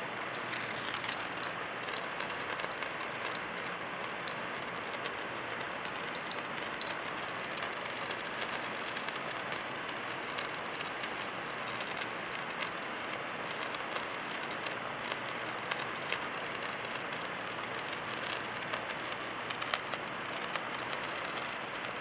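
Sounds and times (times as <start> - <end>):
glass wind chime ringing: 0.0 - 3.6, 5.9 - 7.1, 8.6 - 8.8
fireworks fizzing and crackling: 0.0 - 22.0.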